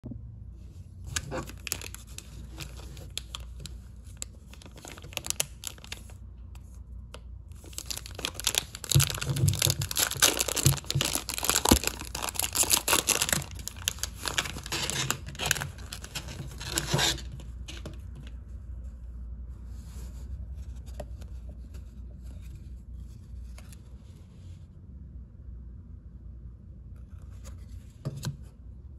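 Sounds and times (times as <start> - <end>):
cards rustling: 1.1 - 6.2, 7.6 - 18.2
wrapper crinkling and ripping: 1.1 - 6.2, 7.6 - 17.8.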